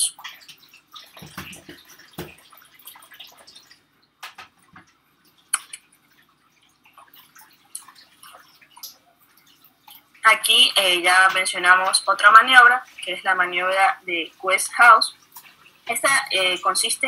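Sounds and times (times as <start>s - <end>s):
faint clicks and taps: 0.0s - 10.2s
low steady hum: 0.0s - 17.0s.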